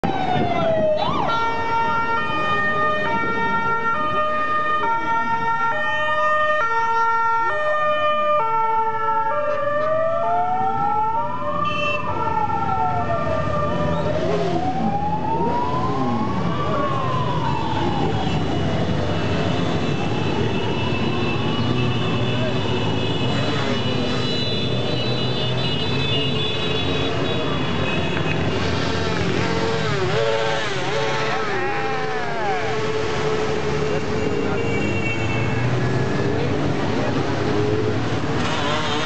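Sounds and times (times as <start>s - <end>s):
hi-lo siren: 0.0s - 25.2s
wailing siren: 0.0s - 34.8s
motorcycles and scooters passing: 26.8s - 34.6s.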